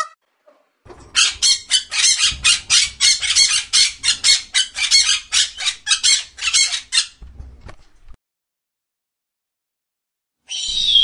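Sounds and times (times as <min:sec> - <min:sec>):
parrot screeching: 0:01.0 - 0:07.2, 0:10.5 - 0:11.0.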